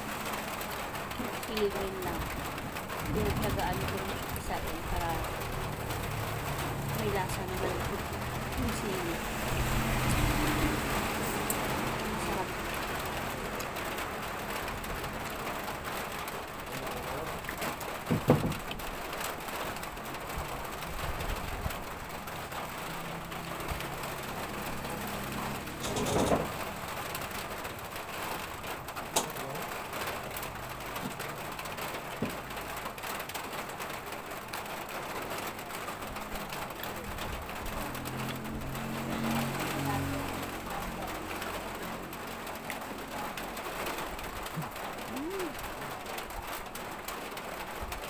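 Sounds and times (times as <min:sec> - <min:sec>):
tableware knocks and clicks: 0:25.8 - 0:26.5.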